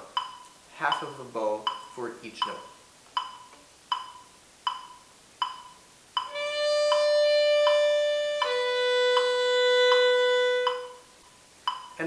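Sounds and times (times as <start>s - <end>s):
metronome clicking: 0.1s - 12.0s
violin held notes: 6.3s - 11.1s.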